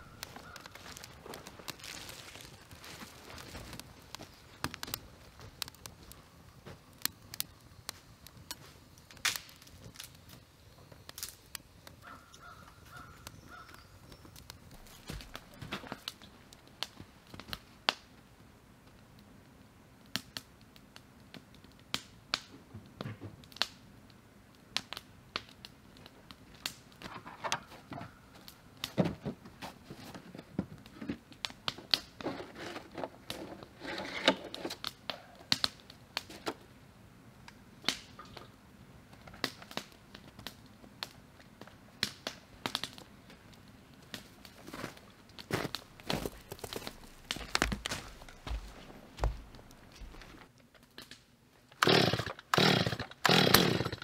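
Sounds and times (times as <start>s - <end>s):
footsteps on snow: 0.3s - 4.4s, 44.6s - 50.4s.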